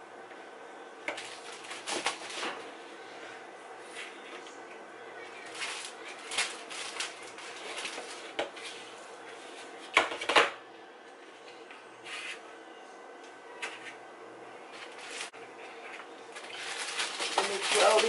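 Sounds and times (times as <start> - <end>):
plastic bag rustling: 1.2 - 2.6, 5.4 - 9.0, 14.8 - 18.0.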